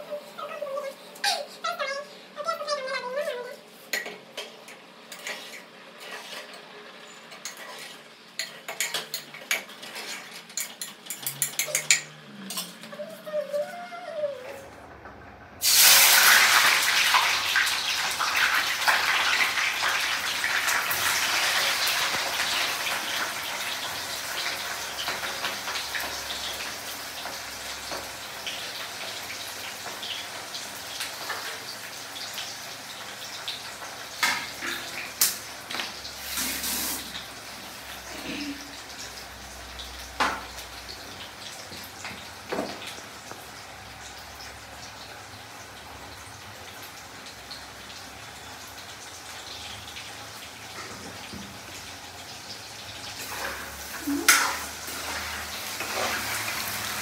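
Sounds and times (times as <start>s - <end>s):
dishes and utensils clattering: 3.9s - 13.7s
tap water running: 15.6s - 57.0s.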